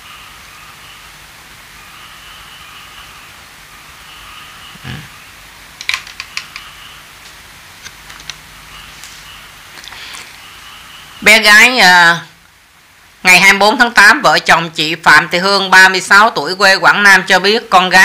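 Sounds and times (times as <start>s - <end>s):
faint steady hum: 0.0s - 18.0s
sharp clicks: 5.8s - 6.7s.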